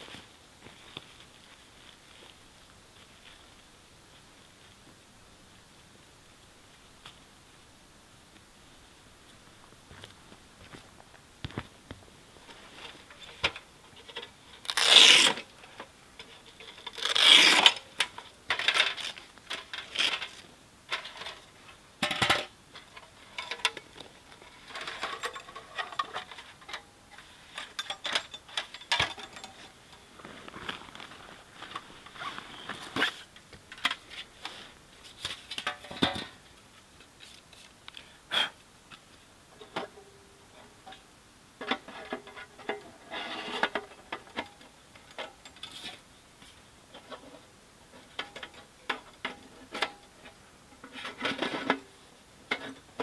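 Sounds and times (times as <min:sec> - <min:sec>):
long metal scrapes: 0:43.0 - 0:43.7.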